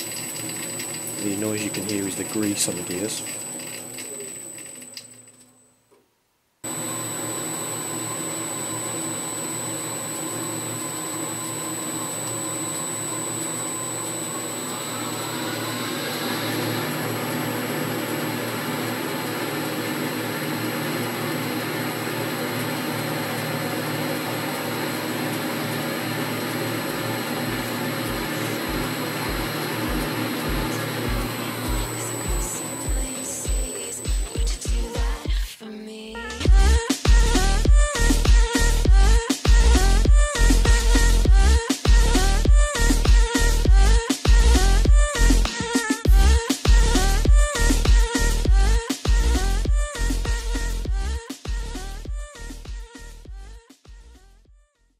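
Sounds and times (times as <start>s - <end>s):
lathe whirring: 0.0s - 5.4s, 6.7s - 35.0s.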